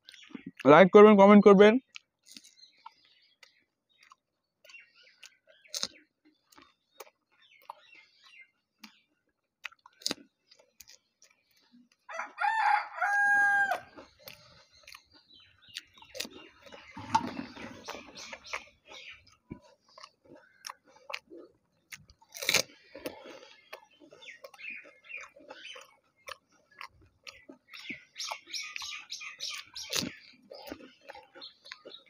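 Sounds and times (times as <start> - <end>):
crisp shells cracked and chewed: 1.8 - 17.2, 17.8 - 32.0
rooster crowing: 12.1 - 14.0.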